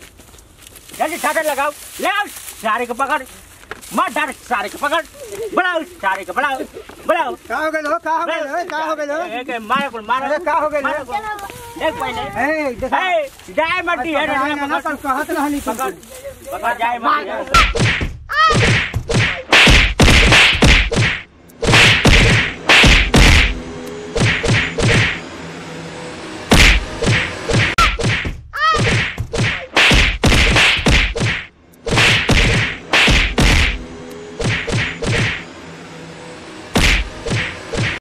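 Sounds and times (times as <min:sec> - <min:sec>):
whacks and thuds of blows: 0:17.6 - 0:23.6, 0:24.2 - 0:25.2, 0:26.5 - 0:33.8, 0:34.4 - 0:35.4, 0:36.8 - 0:38.0.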